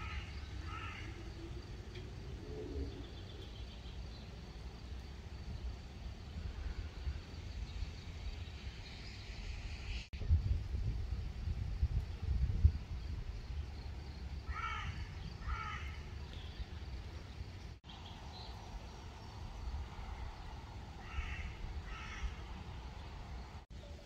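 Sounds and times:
bird calling: 0:00.0 - 0:01.3
wind rumble on microphone: 0:00.0 - 0:04.0, 0:04.7 - 0:24.0.

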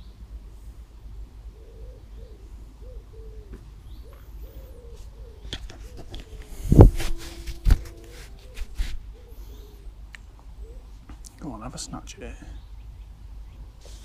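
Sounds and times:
pigeon cooing: 0:01.5 - 0:11.2.

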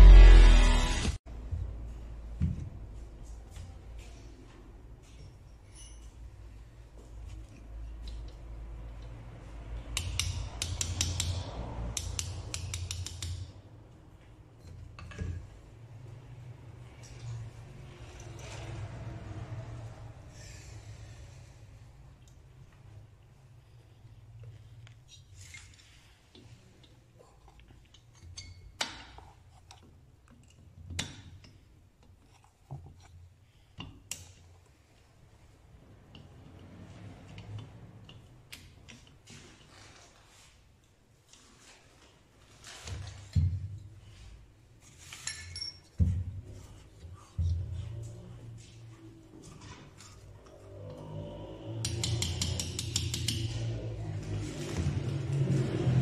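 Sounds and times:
hand tool clicks on metal: 0:10.0 - 0:13.5, 0:51.8 - 0:53.6
small hammer tapping on metal: 0:12.0 - 0:13.5, 0:51.8 - 0:53.5.

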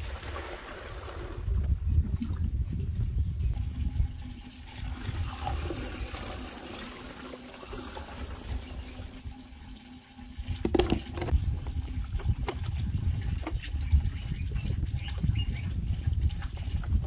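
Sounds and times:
water splashing over dishes: 0:04.1 - 0:15.1.

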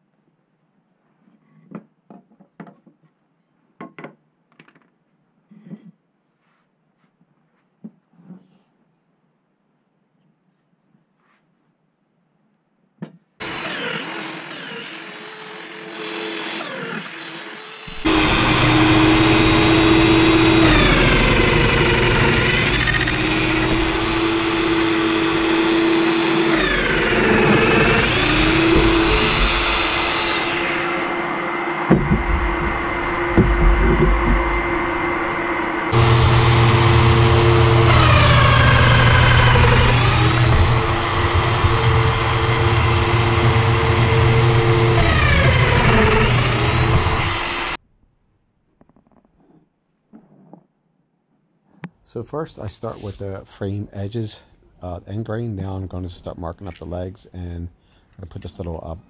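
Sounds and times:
dust extractor hum: 0:13.4 - 0:14.3, 0:15.9 - 0:16.7, 0:17.9 - 0:47.8
power tool motor whining: 0:13.4 - 0:47.8
knocks: 0:31.9 - 0:35.0.

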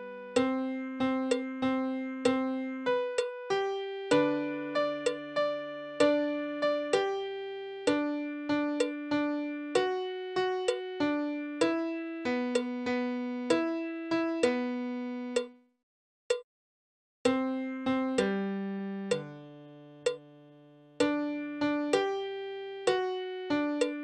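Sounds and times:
slow gentle piano melody: 0:00.0 - 0:15.6, 0:17.3 - 0:24.0.

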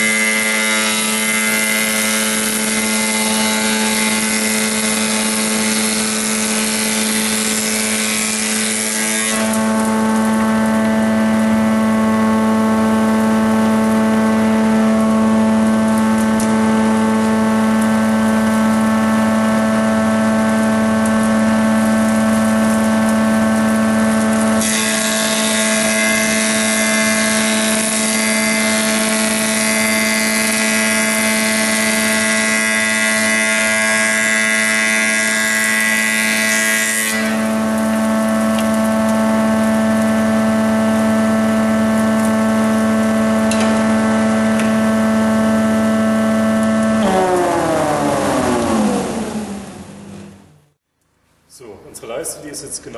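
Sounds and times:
planer cutting wooden board: 0:00.0 - 0:11.9, 0:24.5 - 0:37.8, 0:43.4 - 0:50.4
thickness planer motor hum: 0:00.0 - 0:50.8.

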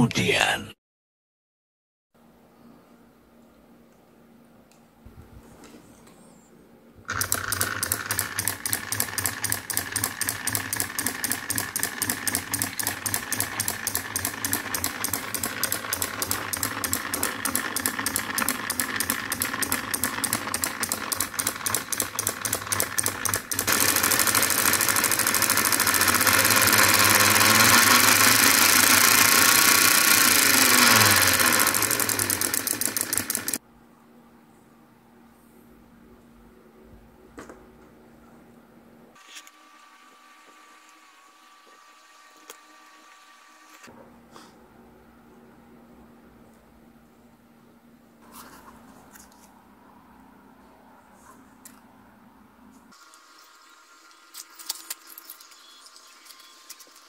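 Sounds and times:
small diesel engine knocking: 0:07.1 - 0:33.6.

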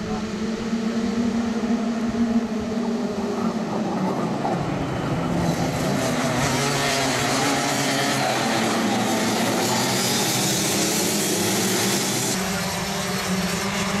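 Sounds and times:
racing kart engines: 0:00.0 - 0:14.0.

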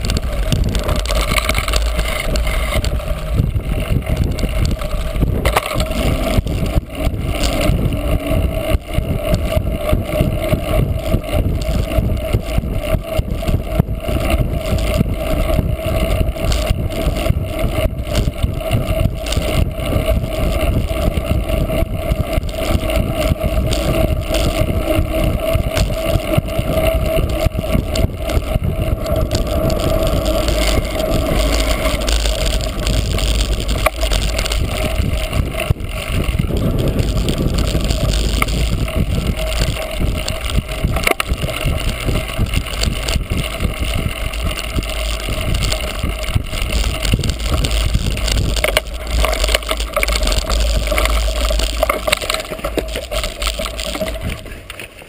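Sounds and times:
wind buffeting microphone: 0:00.0 - 0:54.8
bicycle tyre and drivetrain rattle: 0:00.0 - 0:55.0.

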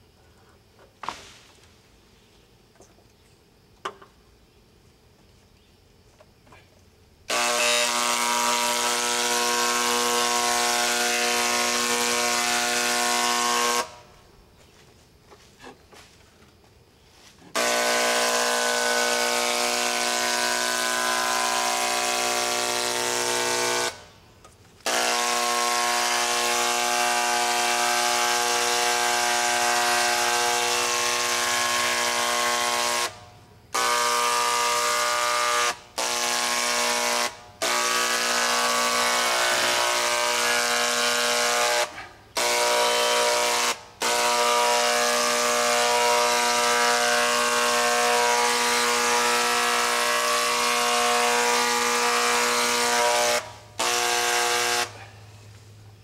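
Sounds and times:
electric paint sprayer buzzing: 0:07.2 - 0:14.2, 0:17.5 - 0:24.2, 0:24.8 - 0:55.1.

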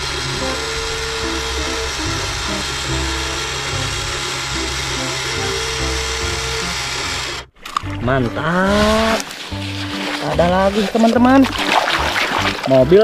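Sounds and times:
small electric motor whirring: 0:00.0 - 0:07.6
background music: 0:00.0 - 0:13.0.

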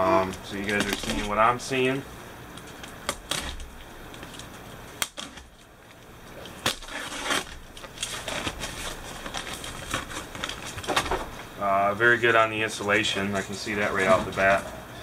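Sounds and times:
cardboard crackling and rustling: 0:00.3 - 0:01.7, 0:02.6 - 0:11.5
tape and flaps snapping: 0:02.5 - 0:05.7
cardboard box tearing open: 0:06.6 - 0:10.8.

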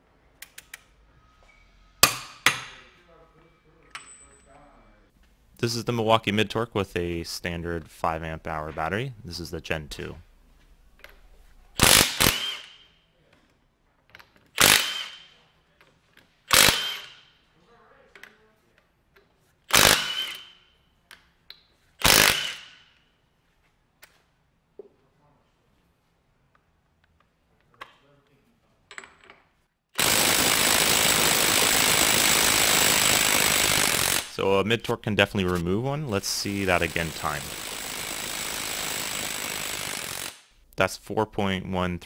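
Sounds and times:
impact wrench hammering: 0:02.0 - 0:02.9, 0:14.6 - 0:15.3, 0:16.5 - 0:17.3, 0:19.7 - 0:20.6, 0:22.0 - 0:22.9, 0:30.0 - 0:34.4, 0:36.1 - 0:40.6.

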